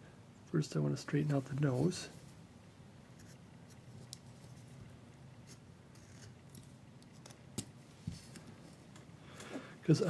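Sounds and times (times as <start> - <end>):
low room hum: 0.0 - 10.0
knife scraping wood: 5.4 - 6.4.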